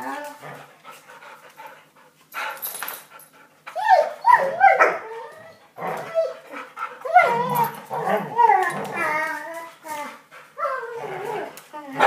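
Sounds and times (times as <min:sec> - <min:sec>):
dogs whining: 0:03.7 - 0:12.0.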